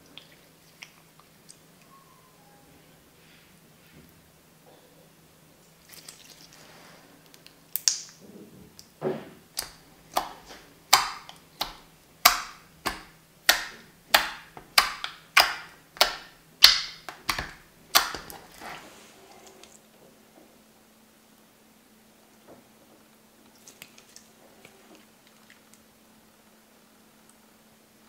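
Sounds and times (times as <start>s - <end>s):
slime squishing with pops: 7.3s - 8.2s, 8.8s - 18.8s.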